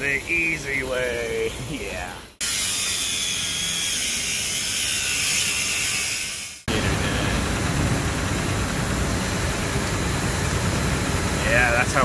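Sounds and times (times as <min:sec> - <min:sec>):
angle grinder grinding metal: 0:02.4 - 0:06.7
machinery rumbling: 0:06.7 - 0:12.0.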